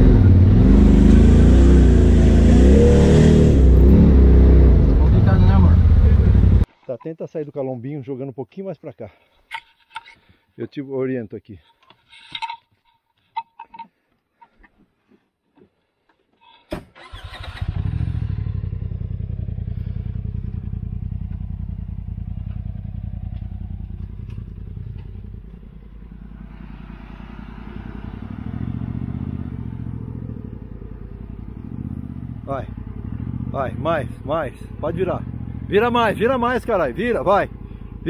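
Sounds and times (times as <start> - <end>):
engine running: 0.0 - 6.7, 17.0 - 38.0.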